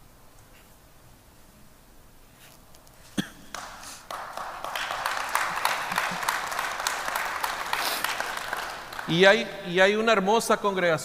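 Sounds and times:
single sharp clap: 3.5s - 9.1s
audience applauding: 3.5s - 9.9s.

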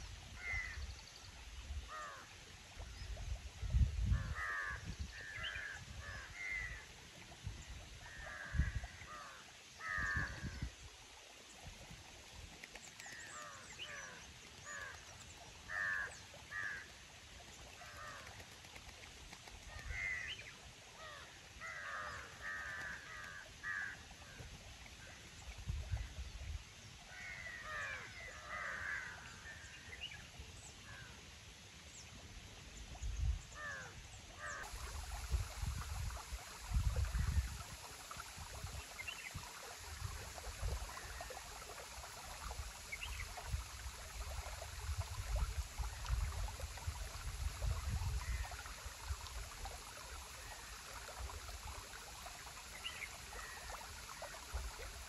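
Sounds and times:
wind rumbling on microphone: 2.8s - 9.2s, 9.8s - 10.9s, 25.4s - 26.7s, 32.8s - 33.8s, 34.6s - 52.2s
crows cawing: 15.7s - 16.9s, 21.1s - 24.0s.

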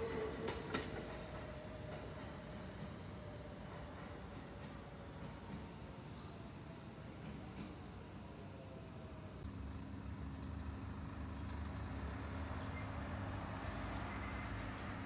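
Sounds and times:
vehicle engine humming: 9.4s - 15.0s.

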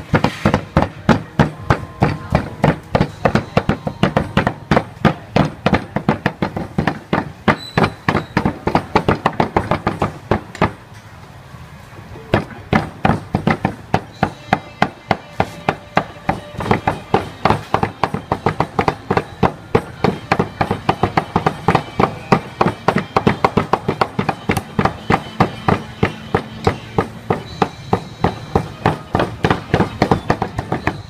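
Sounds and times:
cleaver chopping on wooden block: 0.0s - 10.8s, 12.3s - 31.0s.

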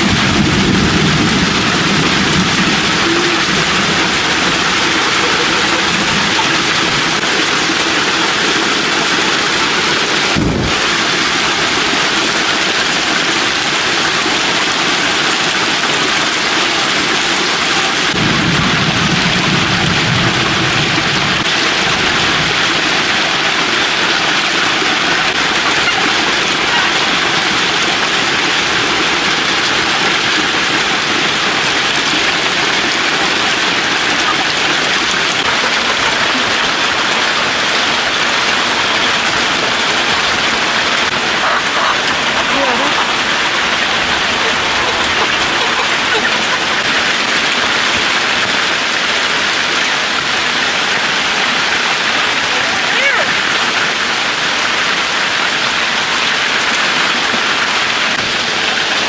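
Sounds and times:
low rumble: 0.0s - 8.0s
heavy rain falling: 0.0s - 59.0s.

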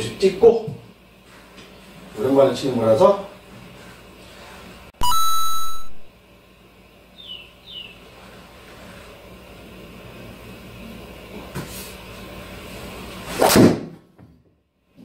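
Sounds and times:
loud electronic beep: 5.0s - 6.1s
short falling chirps: 5.0s - 6.1s.

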